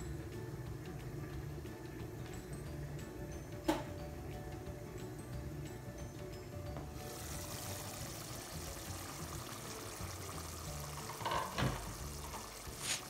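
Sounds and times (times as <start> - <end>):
curry bubbling in a pot: 7.0 - 13.0.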